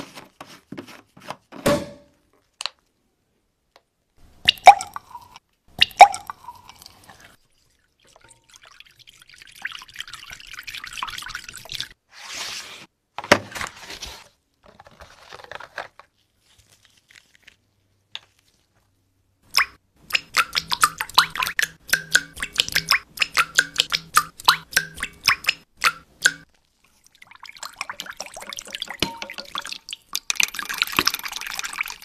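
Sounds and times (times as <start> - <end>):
resin trickling into glass: 4.5 - 12.0.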